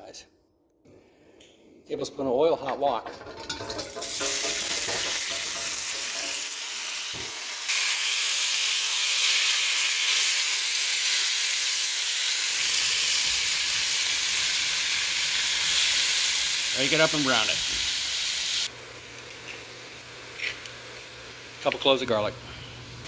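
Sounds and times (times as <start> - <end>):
spatula stirring in wok: 3.2 - 6.4
chicken sizzling in hot oil: 3.2 - 21.6.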